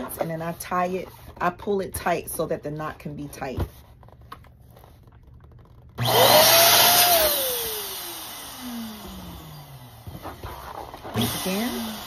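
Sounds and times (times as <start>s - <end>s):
balloon inflator blower whining: 5.6s - 12.0s.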